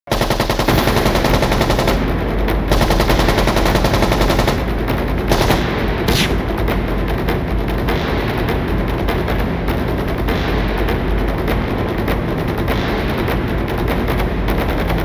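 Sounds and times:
machine-gun fire: 0.1s - 7.0s.

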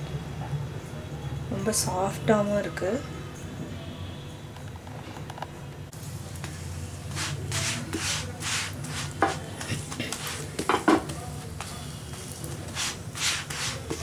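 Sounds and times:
spatula scraping flatbread on pan: 7.1s - 10.8s, 12.6s - 14.0s.

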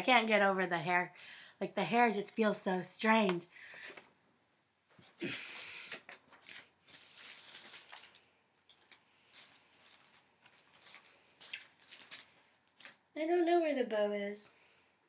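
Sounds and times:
faint rustling: 4.9s - 13.0s
soft clicks and crinkles: 4.9s - 13.1s.

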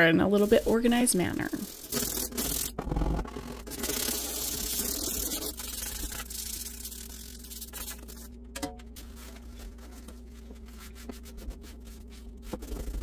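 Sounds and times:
brush bristles scraping wood: 0.0s - 7.8s.

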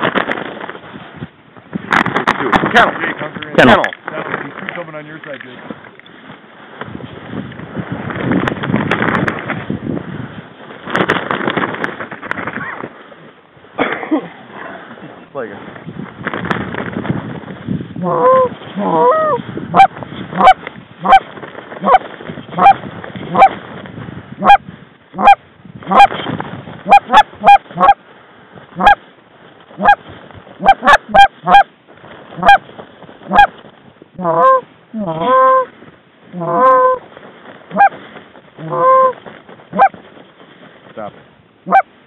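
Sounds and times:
goose calls clucking and honking: 18.0s - 23.6s, 24.4s - 24.6s, 25.2s - 26.2s, 26.8s - 28.0s, 28.8s - 29.0s, 29.8s - 30.0s, 30.6s - 31.7s, 32.4s - 32.6s, 33.3s - 33.5s, 34.2s - 35.7s, 36.3s - 37.0s, 37.7s - 38.0s, 38.6s - 40.0s, 41.7s - 41.9s.

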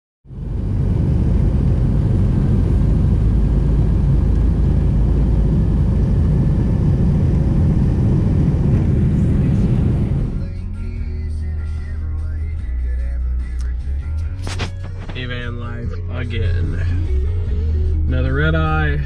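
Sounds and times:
airliner cabin low rumble: 0.3s - 10.6s.

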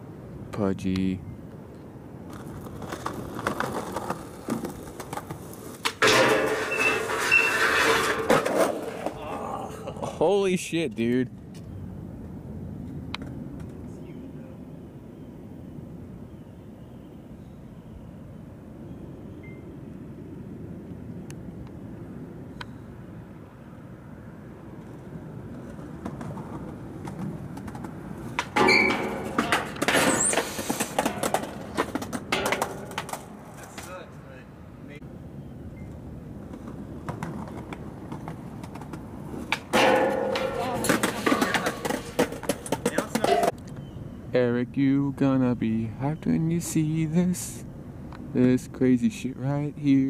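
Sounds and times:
skateboard rolling: 2.2s - 10.0s, 24.7s - 34.0s, 35.9s - 43.6s
skateboard clack: 2.3s - 9.2s, 25.5s - 34.0s, 36.4s - 43.6s
skateboard scraping on metal rail: 2.3s - 9.2s, 25.9s - 33.9s, 37.2s - 43.6s
high ring from metal rail: 6.0s - 8.3s, 28.6s - 29.4s, 39.8s - 42.0s
skateboard knock: 26.0s - 33.9s, 37.0s - 43.6s.

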